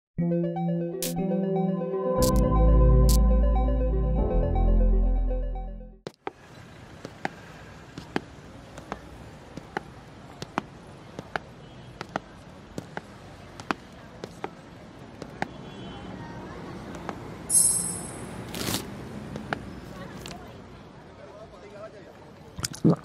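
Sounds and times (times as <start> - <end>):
synthesizer music: 0.2 - 6.0
city street hum: 0.6 - 5.3, 6.0 - 22.7
footsteps on pavement: 7.0 - 15.6, 18.5 - 20.5.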